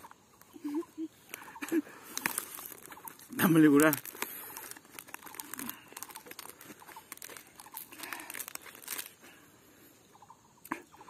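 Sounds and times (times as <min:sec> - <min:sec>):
leaf crinkling and rustling: 0:01.3 - 0:09.4.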